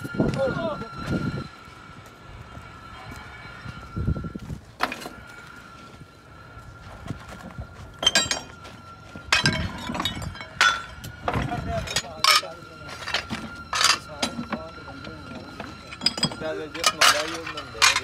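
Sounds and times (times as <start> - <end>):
high-pitched whine: 0.0 - 18.0
scrap iron clanking: 7.9 - 18.0.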